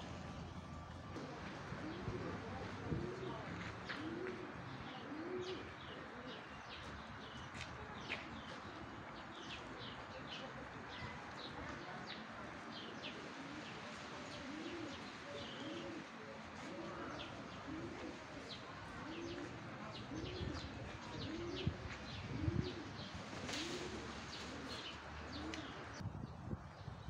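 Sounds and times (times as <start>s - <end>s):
pigeon cooing: 1.2s - 6.8s, 8.3s - 26.0s.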